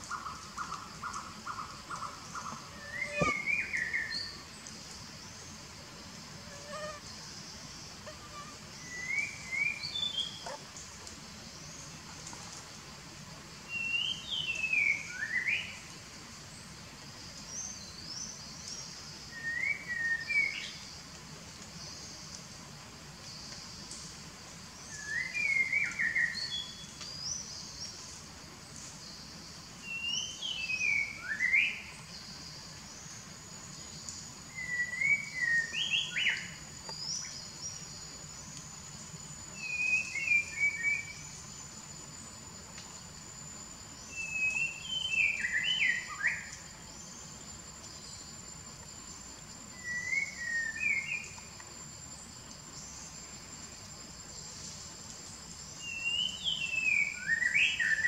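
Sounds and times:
high insect drone: 0:00.0 - 0:58.0
songbird phrase: 0:00.1 - 0:04.6, 0:06.4 - 0:10.8, 0:29.8 - 0:33.1, 0:44.0 - 0:47.4, 0:55.7 - 0:58.0.

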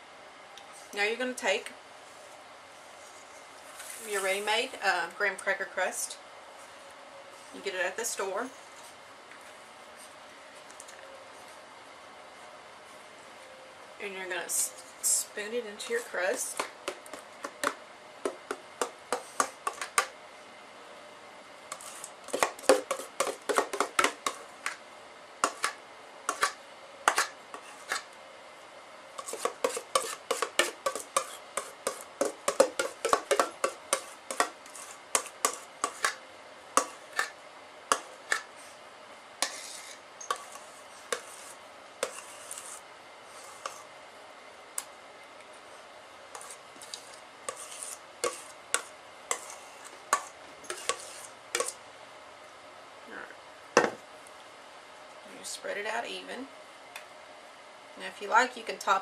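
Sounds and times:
metal spoon scraping and clinking bowl: 0:29.2 - 0:36.2, 0:39.4 - 0:42.8, 0:46.4 - 0:51.8.

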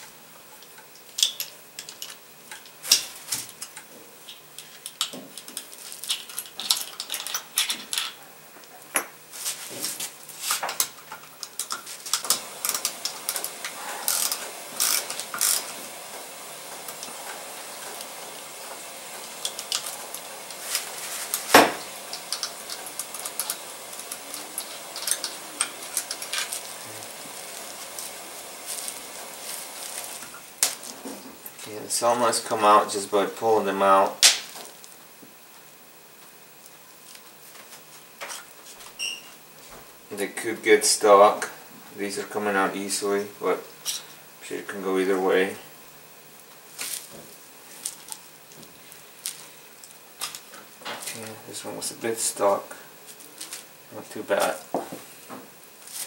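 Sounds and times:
small metal parts clinking: 0:04.3 - 0:08.2
ratchet wrench clicking: 0:11.4 - 0:13.5, 0:14.1 - 0:15.7.

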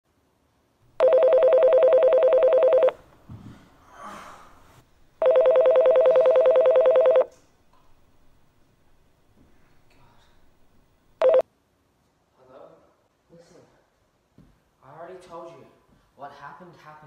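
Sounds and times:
phone ringtone trilling: 0:01.0 - 0:03.0, 0:05.2 - 0:07.3, 0:11.2 - 0:11.4.

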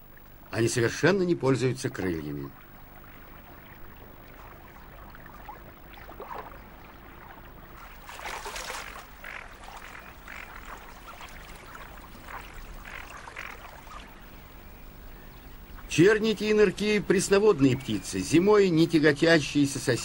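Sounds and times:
ducks splashing in water: 0:01.9 - 0:14.8.

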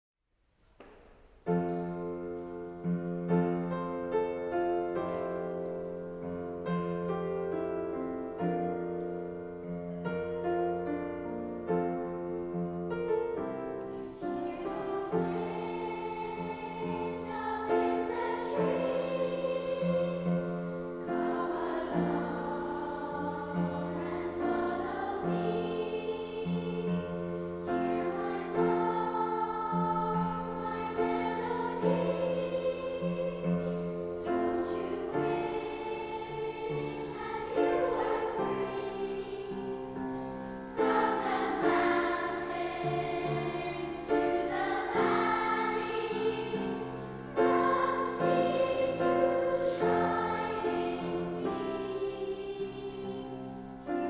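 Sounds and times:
piano chords: 0:01.4 - 0:54.0
children's choir singing: 0:12.9 - 0:54.0.

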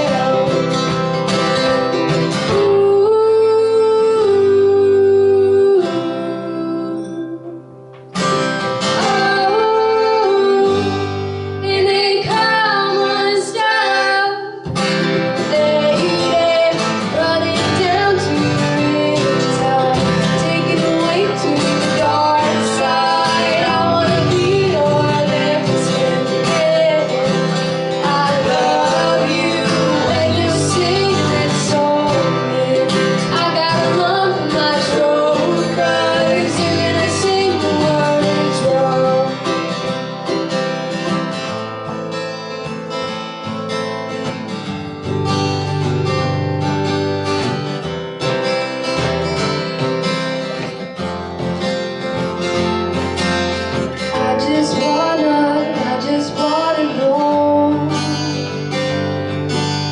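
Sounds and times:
woman singing: 0:00.0 - 0:07.8, 0:08.8 - 0:40.0, 0:54.0 - 0:59.2
strummed acoustic guitars: 0:00.0 - 0:59.9.

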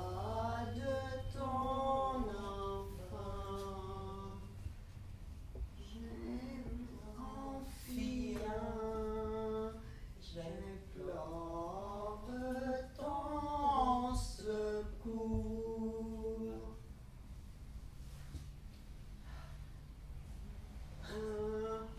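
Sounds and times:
woman singing unaccompanied: 0:05.8 - 0:16.8.

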